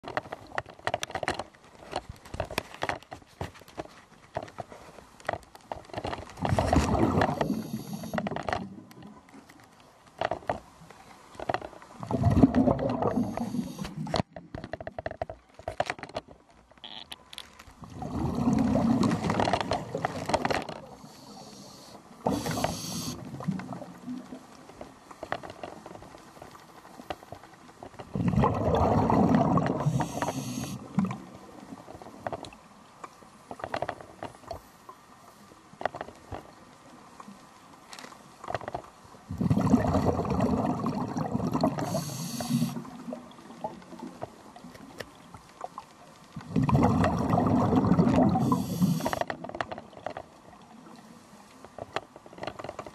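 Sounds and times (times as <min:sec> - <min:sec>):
exhaled bubbles gushing underwater: 0:06.4 - 0:08.9, 0:12.0 - 0:14.1, 0:17.8 - 0:20.2, 0:28.1 - 0:31.6, 0:39.3 - 0:44.1, 0:46.4 - 0:49.2
regulator inhalation hiss: 0:07.4 - 0:08.2, 0:13.2 - 0:14.0, 0:21.0 - 0:23.2, 0:29.8 - 0:30.8, 0:41.8 - 0:42.8, 0:48.4 - 0:49.2.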